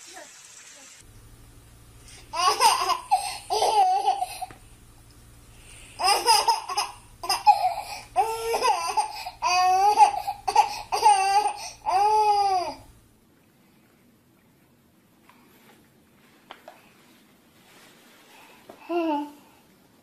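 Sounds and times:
baby laughing: 2.1 - 4.6, 6.0 - 12.8.

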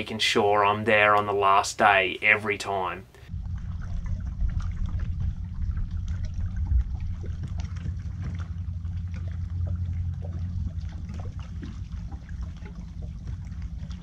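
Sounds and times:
steady low rumble: 3.0 - 14.0
water lapping around boat hull: 3.1 - 14.0.

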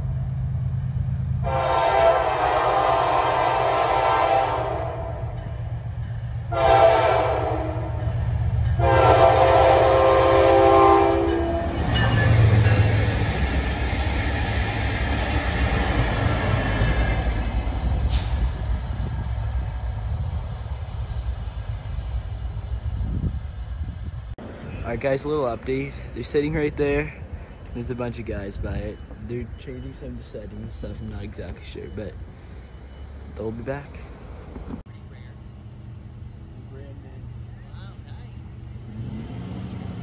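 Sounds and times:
locomotive engine and wheels rumble: 0.0 - 40.0
locomotive horn blasts: 1.4 - 5.4, 6.5 - 8.0, 8.8 - 11.8.

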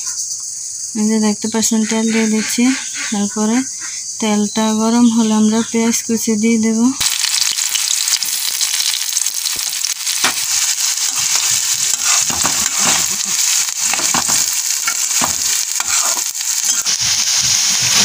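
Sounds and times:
onions sizzling in hot oil: 7.0 - 18.0
metal spatula scraping a pan: 11.0 - 18.0.

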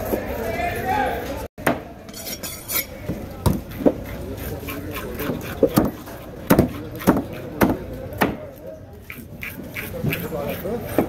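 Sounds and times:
cleaver chopping on wooden block: 5.2 - 8.4.

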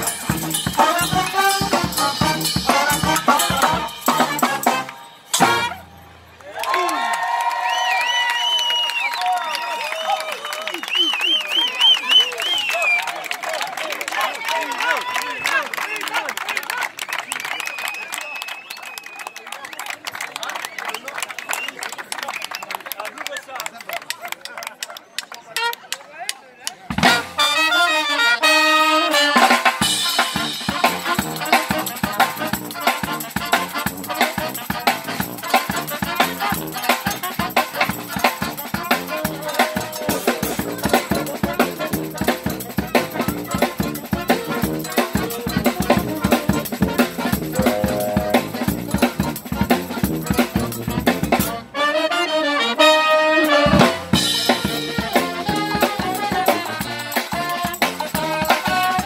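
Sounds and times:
drum kit with snare and cymbals: 0.0 - 6.2, 26.9 - 51.8, 52.9 - 59.0
brass band playing: 0.0 - 6.3, 26.9 - 59.0.

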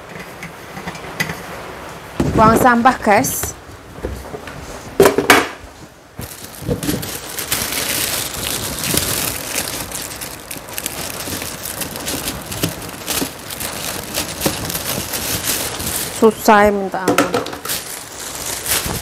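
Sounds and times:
plastic bags rustling: 5.7 - 19.0.

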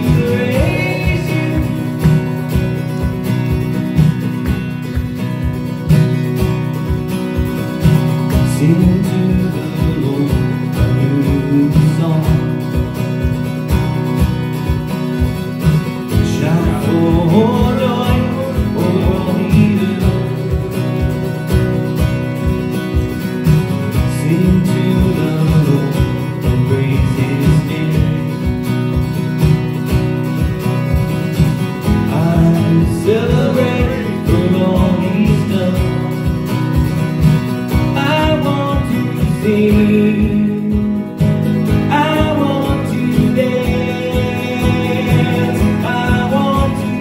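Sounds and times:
man singing: 0.0 - 3.0, 8.0 - 13.2, 16.0 - 21.6, 23.7 - 28.8, 31.8 - 36.6, 37.7 - 47.0
acoustic guitar strummed: 0.0 - 47.0
electronic drum beat: 0.0 - 47.0.

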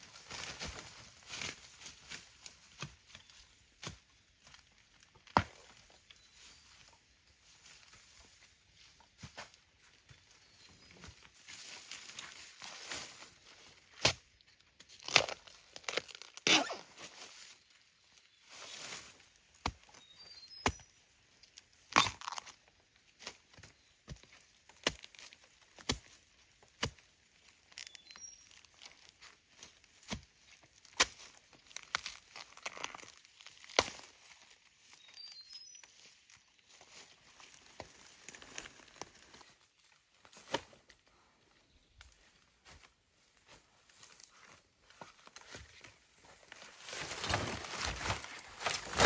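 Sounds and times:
bamboo shoots snapping and tearing: 13.8 - 17.3, 21.5 - 23.4, 24.1 - 35.0, 35.9 - 39.6, 44.0 - 49.0.

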